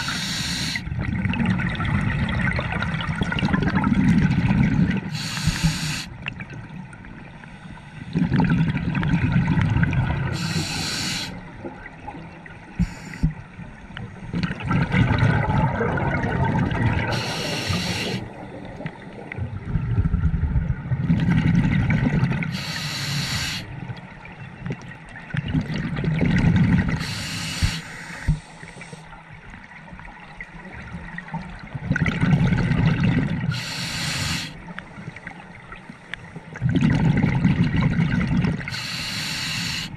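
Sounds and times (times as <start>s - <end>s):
regulator inhale hiss: 0.0s - 0.8s, 5.1s - 6.2s, 7.4s - 8.2s, 10.3s - 11.4s, 12.8s - 13.4s, 17.1s - 18.8s, 22.5s - 23.7s, 27.0s - 29.1s, 33.5s - 34.6s, 38.7s - 39.9s
exhaled bubbles rumbling: 0.8s - 5.3s, 8.1s - 10.8s, 11.4s - 22.5s, 23.7s - 27.1s, 30.6s - 33.6s, 36.5s - 38.7s.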